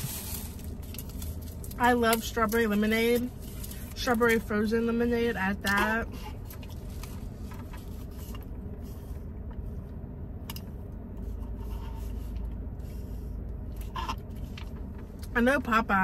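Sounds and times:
faint clicks and rustles: 0:05.6 - 0:15.4.

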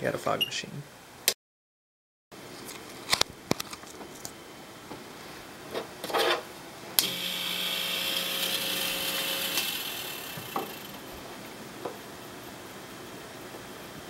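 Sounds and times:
fog machine hissing: 0:07.0 - 0:12.7
faint pump buzz: 0:07.0 - 0:12.8.

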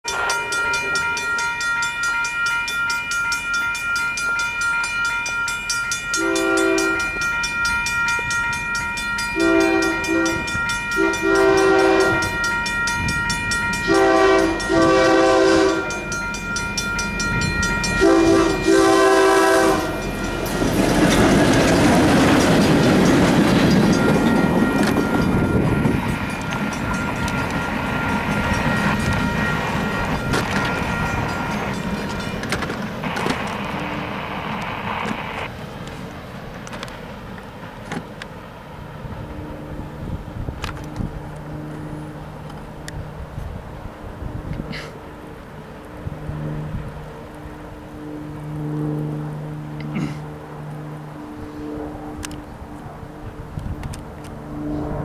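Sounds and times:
locomotive horn blasts: 0:00.0 - 0:20.7
railroad crossing bell ringing: 0:00.0 - 0:35.5
train wheel noise: 0:00.0 - 0:55.0.

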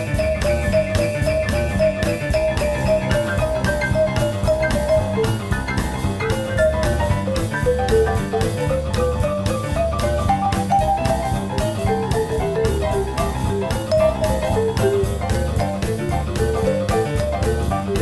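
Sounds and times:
drum kit beat: 0:00.0 - 0:18.0
melody of short notes: 0:10.2 - 0:18.0.

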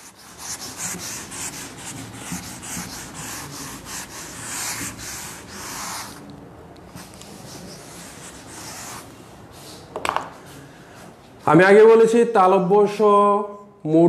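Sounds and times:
eraser rubbing on board: 0:00.0 - 0:06.2, 0:06.9 - 0:09.1.

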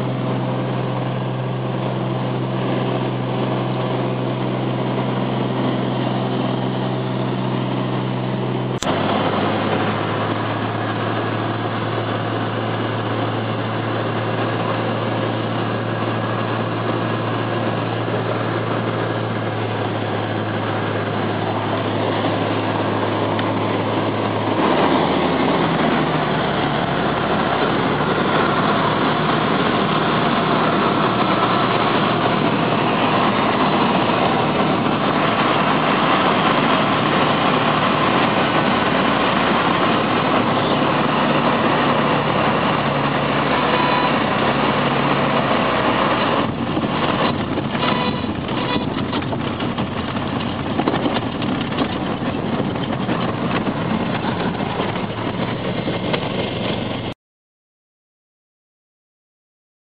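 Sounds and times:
propeller engine running: 0:00.0 - 0:57.2.

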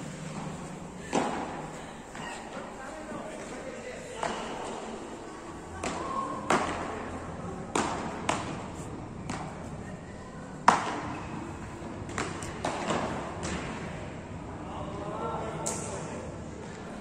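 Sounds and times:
paddles hitting ball: 0:07.7 - 0:09.5.

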